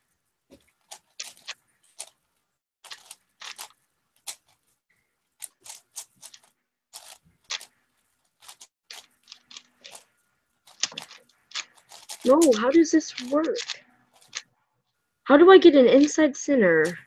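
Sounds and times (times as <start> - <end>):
plastic puzzle cube clicking: 0.8 - 2.1, 2.9 - 4.6, 5.4 - 7.7, 8.4 - 10.0, 10.7 - 14.5.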